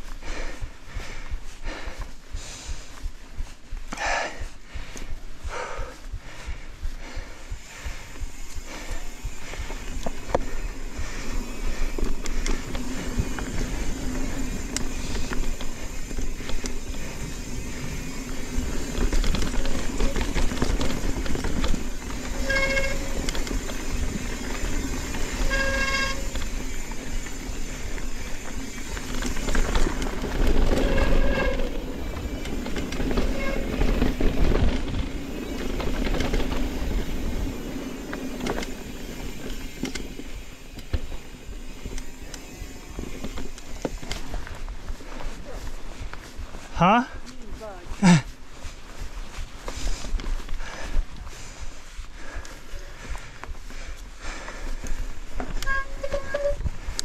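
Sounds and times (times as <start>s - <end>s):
bike tyre and wind rush: 0.0s - 57.0s
brakes squealing: 7.6s - 45.6s, 55.4s - 57.0s.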